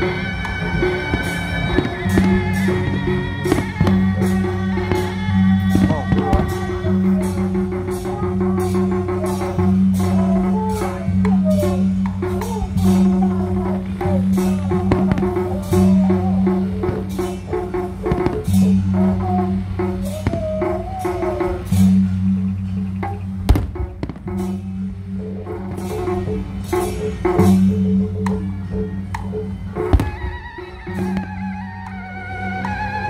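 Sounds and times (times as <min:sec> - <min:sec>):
fireworks bangs: 0:00.0 - 0:06.8, 0:12.5 - 0:19.4, 0:20.1 - 0:21.0, 0:23.5 - 0:24.5
festival music with drums: 0:00.0 - 0:33.0.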